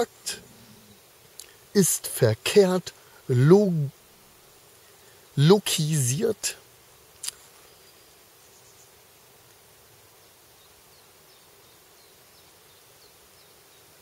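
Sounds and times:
outdoor background hiss: 0:00.0 - 0:14.0
mouth click: 0:07.2 - 0:07.4.

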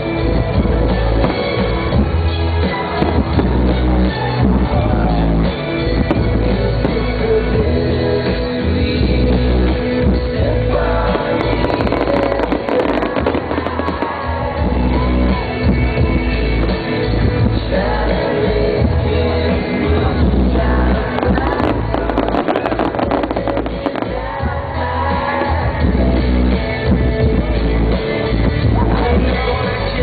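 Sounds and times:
fireworks bursting and crackling: 0:00.0 - 0:28.6
music with singing: 0:00.0 - 0:30.0.

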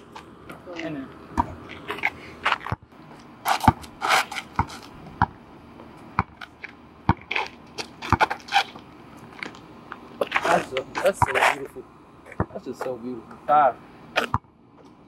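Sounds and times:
basketball bouncing on asphalt: 0:00.0 - 0:10.4, 0:11.1 - 0:11.4, 0:12.2 - 0:12.9, 0:14.2 - 0:14.6.

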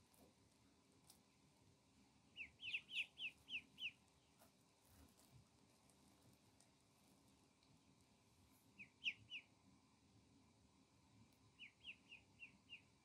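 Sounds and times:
ducklings peeping: 0:02.2 - 0:05.2, 0:08.6 - 0:09.6, 0:11.3 - 0:13.0.

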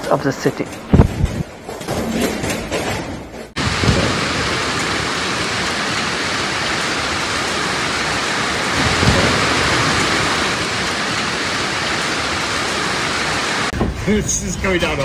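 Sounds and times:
heavy rain downpour: 0:03.6 - 0:14.2.

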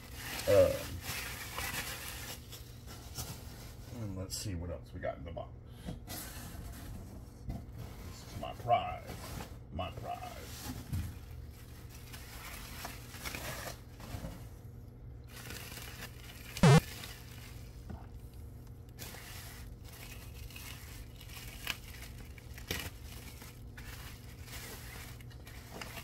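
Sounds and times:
plastic crinkling and rustling: 0:00.0 - 0:03.9, 0:10.5 - 0:14.4, 0:15.3 - 0:26.0.

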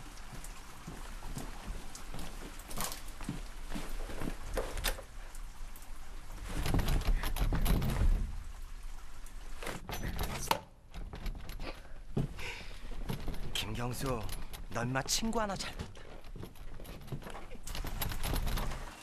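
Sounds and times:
rain-like hiss: 0:00.0 - 0:19.0
clicks and knocks: 0:09.6 - 0:19.0.

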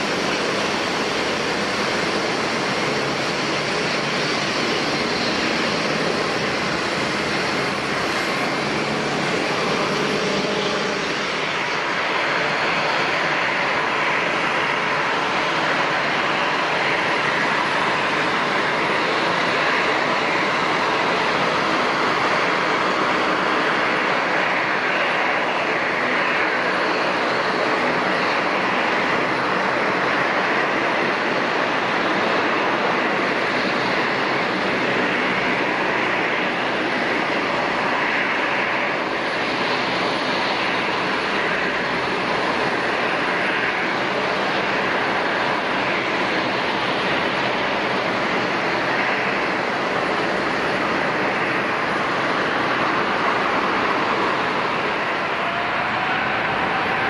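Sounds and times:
jet engines running: 0:00.0 - 0:57.0.

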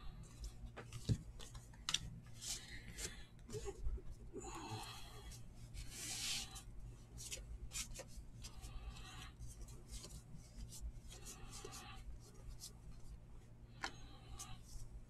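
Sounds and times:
trading cards rubbing together: 0:05.7 - 0:06.6.

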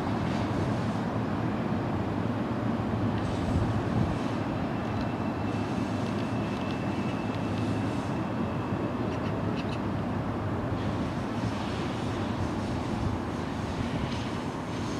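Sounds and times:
train low rumble: 0:00.0 - 0:14.9
thin high whine: 0:03.2 - 0:08.9.

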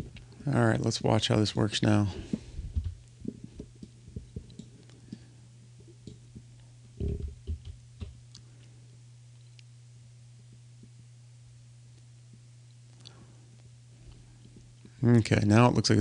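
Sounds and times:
steady low hum: 0:00.0 - 0:16.0
soft low thumps: 0:02.1 - 0:04.5.

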